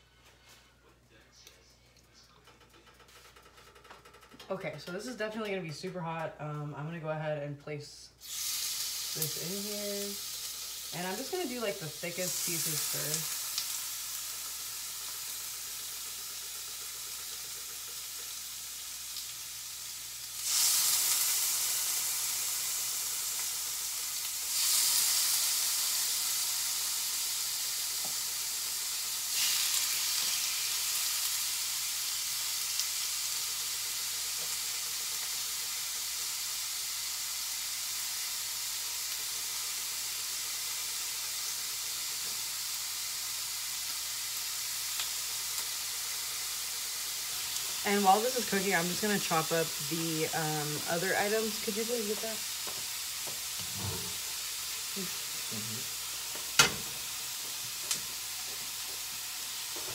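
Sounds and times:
meat sizzling in a skillet: 0:08.2 - 0:59.9.

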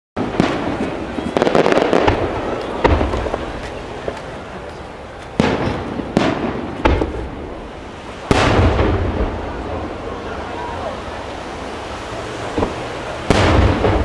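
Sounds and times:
firework shells bursting: 0:00.2 - 0:09.4, 0:12.6 - 0:14.0
rumbling echo: 0:05.3 - 0:14.0.

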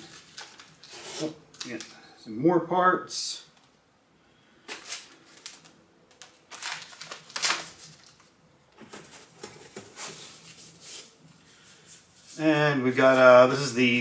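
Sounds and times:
cardboard boxes being handled: 0:08.8 - 0:11.1.

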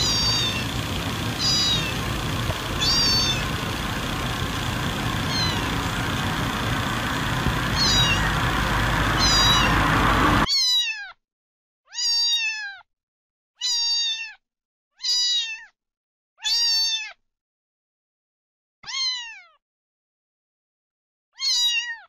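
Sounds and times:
steady rushing noise: 0:00.0 - 0:10.5.

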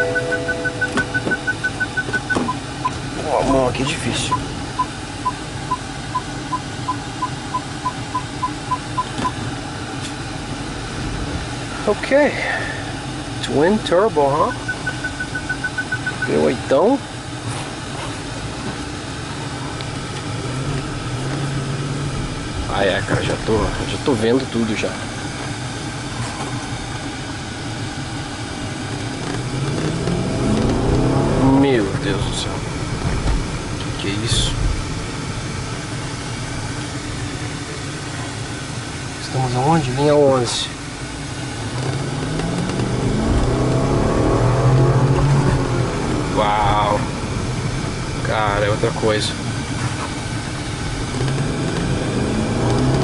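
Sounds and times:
parking sensor beeping: 0:00.0 - 0:03.0, 0:03.8 - 0:09.4, 0:14.4 - 0:16.5
low steady hum: 0:00.0 - 0:53.0
road noise inside car: 0:00.0 - 0:53.0.

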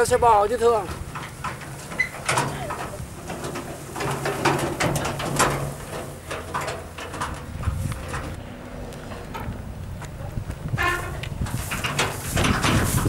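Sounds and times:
wooden hand cart rattling: 0:00.0 - 0:08.4, 0:09.0 - 0:13.0.

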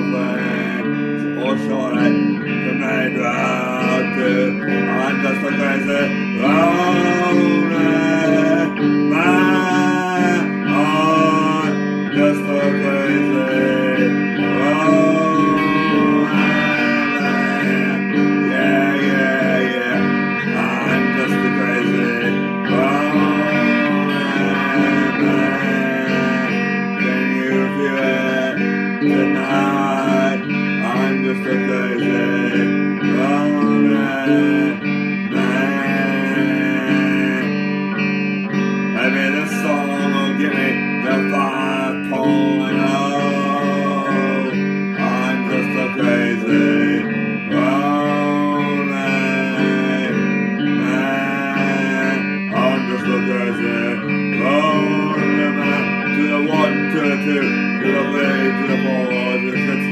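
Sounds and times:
electric guitar strummed: 0:00.0 - 0:59.9
person singing wordless melody: 0:00.0 - 0:59.9.

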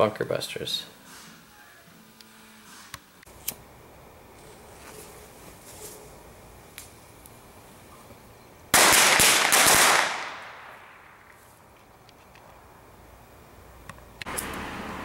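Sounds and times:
firecrackers rapid bangs: 0:08.7 - 0:11.3.

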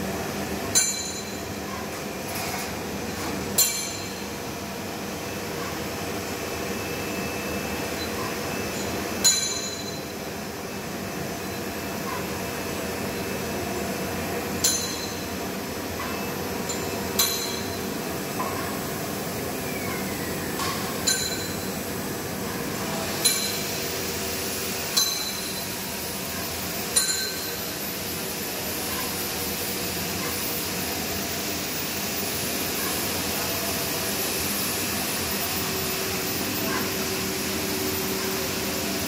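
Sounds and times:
extrusion machine humming: 0:10.1 - 0:39.0.

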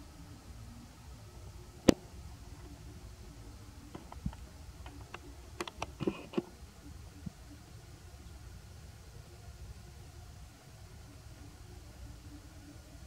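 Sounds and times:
light clicks and taps: 0:03.9 - 0:06.5.

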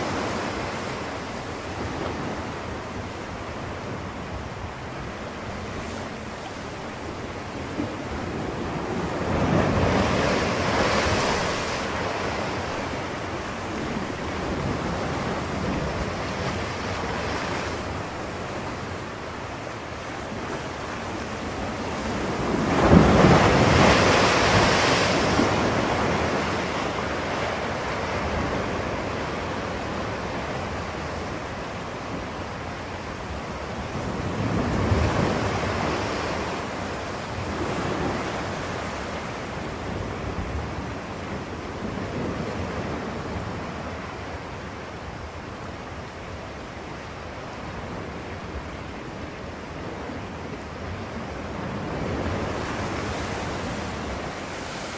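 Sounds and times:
ocean waves breaking: 0:00.0 - 0:54.9.

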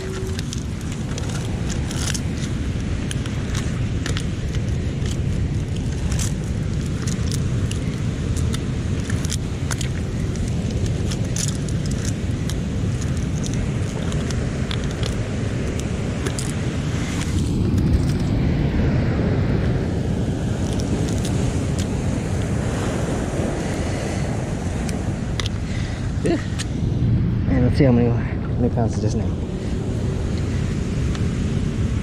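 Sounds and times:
mussel shells clicking: 0:00.0 - 0:17.4
wind and surf rumble: 0:00.0 - 0:32.0.

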